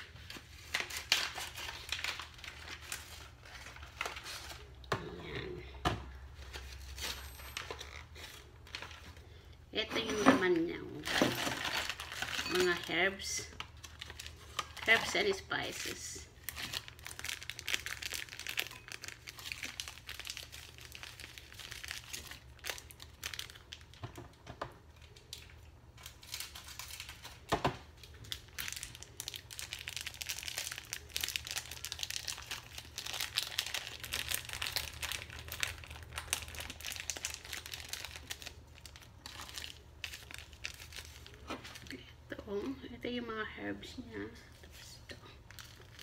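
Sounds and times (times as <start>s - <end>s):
packet crinkling: 0.1s - 4.8s, 10.9s - 24.1s, 24.9s - 42.0s, 45.4s - 46.0s.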